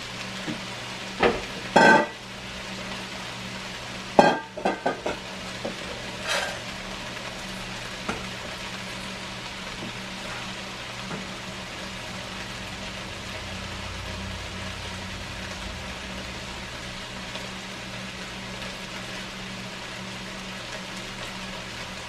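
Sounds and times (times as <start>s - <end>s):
potatoes and sausage sizzling: 0.0s - 22.0s
kitchenware clattering: 1.3s - 2.2s, 4.2s - 5.2s, 6.2s - 6.6s.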